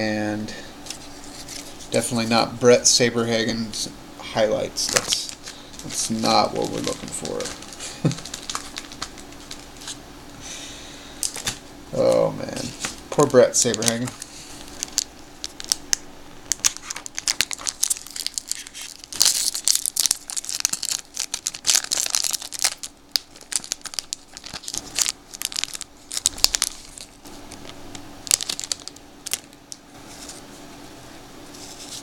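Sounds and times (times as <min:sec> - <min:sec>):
foil wrapper crackling and ripping: 0:04.8 - 0:10.0, 0:12.6 - 0:30.4.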